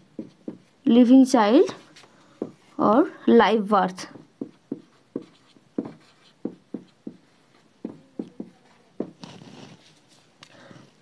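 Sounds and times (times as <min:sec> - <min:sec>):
marker writing on whiteboard: 0:00.0 - 0:10.0.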